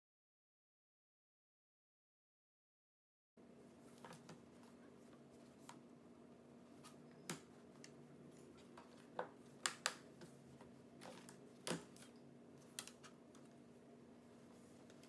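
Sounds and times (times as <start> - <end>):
faint steady hum: 3.4 - 15.0.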